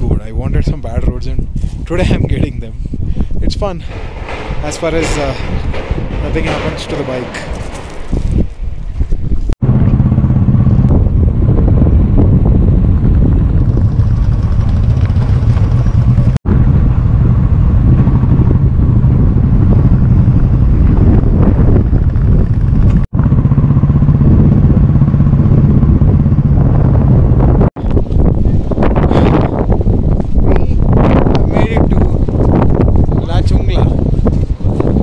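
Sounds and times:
motorcycle engine running: 0:09.3 - 0:35.0.

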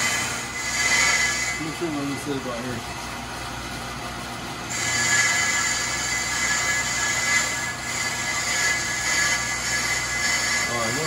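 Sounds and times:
high-pitched metallic squeal: 0:00.0 - 0:02.3, 0:04.7 - 0:11.0
brake lathe motor hum: 0:00.0 - 0:11.0.

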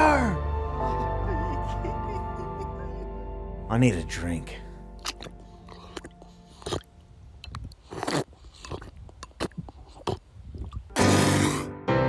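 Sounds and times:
person slurping water: 0:05.0 - 0:11.7.

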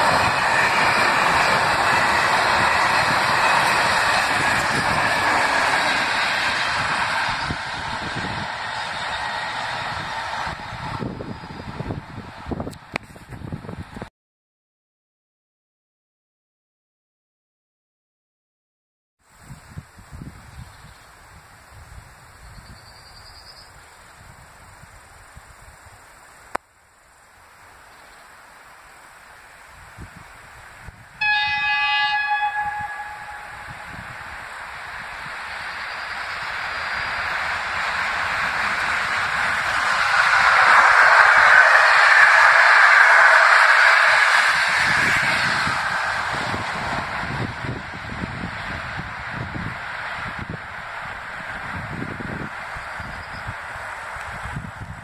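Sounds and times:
train wheels rumbling on rails: 0:00.0 - 0:14.1, 0:27.5 - 0:55.0
wind and rustling: 0:00.0 - 0:14.1, 0:19.2 - 0:55.0.

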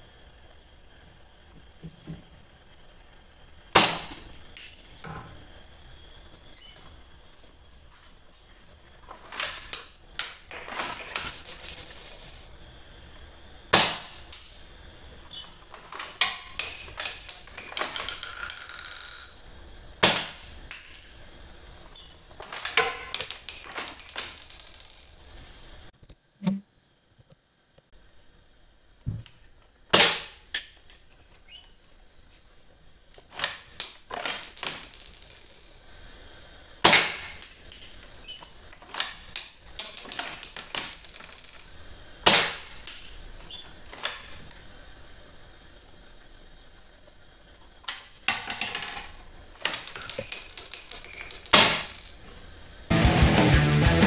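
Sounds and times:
toy parts clicking on wood: 0:49.6 - 0:52.2
thin high ringing: 0:49.6 - 0:52.3.

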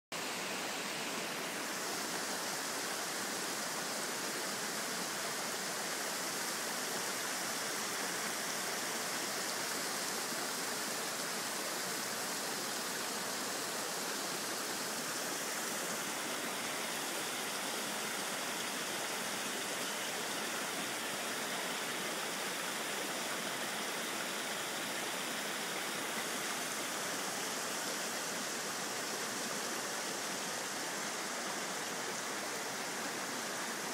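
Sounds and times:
stream water flowing: 0:00.1 - 0:33.9.

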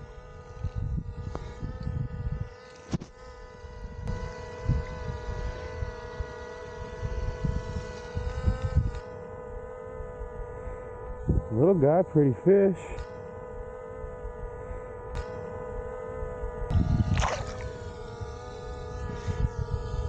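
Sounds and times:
wind on microphone: 0:00.5 - 0:02.6, 0:03.6 - 0:09.0, 0:16.7 - 0:20.0.

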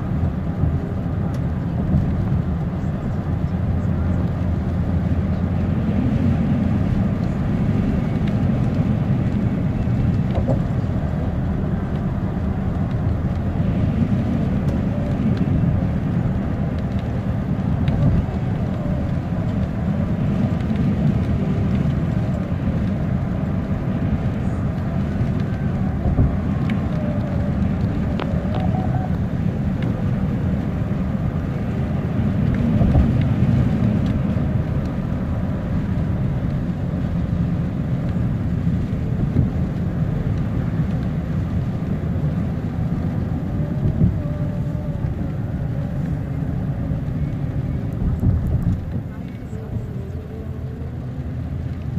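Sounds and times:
car cabin road and engine noise: 0:00.0 - 0:51.9.

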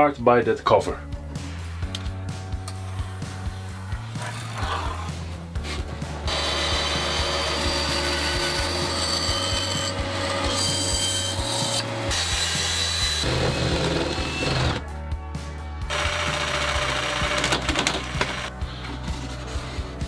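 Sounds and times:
bandsaw cutting plywood: 0:05.6 - 0:14.8, 0:15.9 - 0:19.8
drill boring into plywood: 0:06.3 - 0:14.8, 0:15.9 - 0:18.5.

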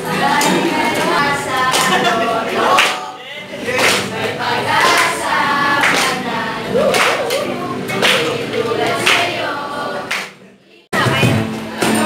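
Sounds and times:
group of voices singing: 0:00.0 - 0:12.0
hand claps: 0:00.4 - 0:02.1, 0:02.7 - 0:03.0, 0:03.8 - 0:06.3, 0:06.9 - 0:08.4, 0:09.0 - 0:09.4, 0:10.1 - 0:10.4.

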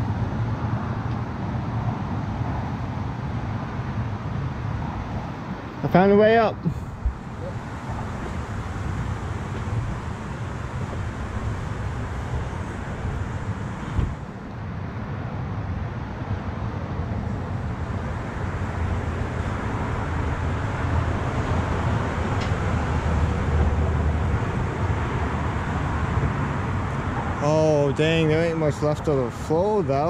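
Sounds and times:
low rumbling background noise: 0:00.0 - 0:30.0.

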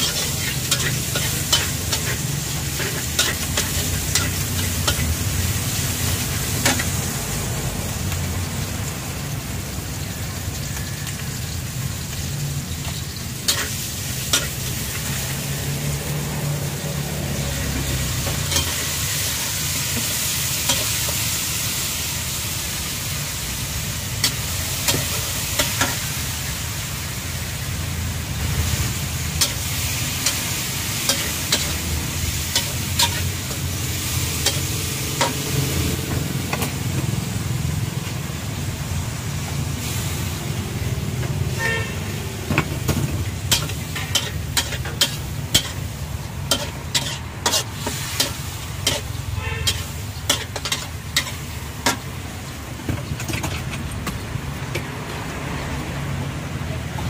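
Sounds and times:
metal spatula scraping a wok: 0:00.0 - 0:07.0, 0:17.6 - 0:21.6, 0:28.4 - 0:36.8, 0:43.0 - 0:52.0
food sizzling: 0:00.0 - 0:57.0.

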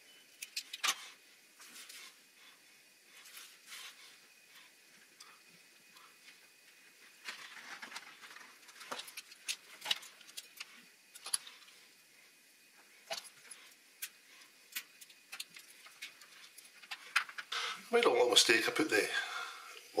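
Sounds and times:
hands handling wires and connector: 0:00.4 - 0:01.0.

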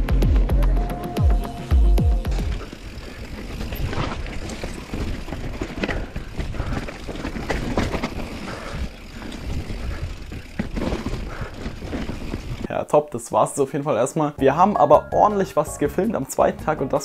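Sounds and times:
bike tyres on dirt and roots: 0:02.2 - 0:13.0.

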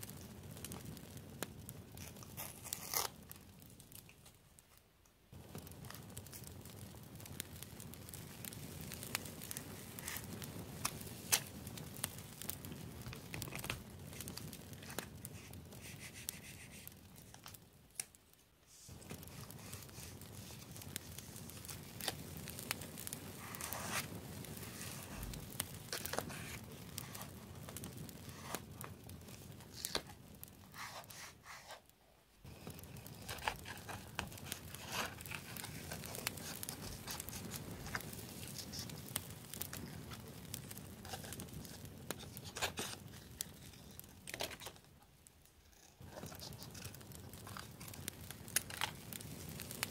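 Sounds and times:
paper crinkling and peeling: 0:02.0 - 0:03.4, 0:13.0 - 0:18.1, 0:18.7 - 0:44.9, 0:45.7 - 0:49.9.

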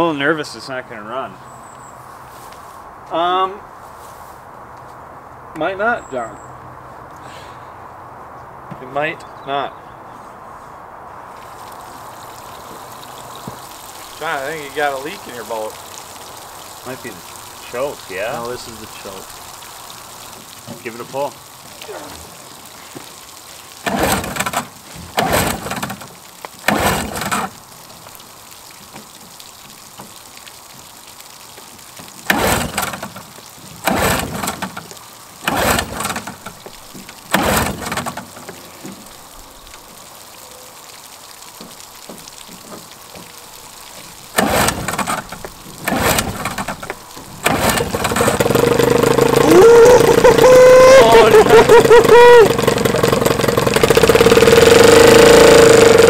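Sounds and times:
recoil starter cranking pulls: 0:23.8 - 0:27.6, 0:32.3 - 0:38.5, 0:44.3 - 0:56.0
outboard engine running: 0:23.9 - 0:27.6, 0:32.3 - 0:33.2, 0:33.8 - 0:34.8, 0:35.4 - 0:36.6, 0:37.3 - 0:38.4, 0:44.3 - 0:56.0.

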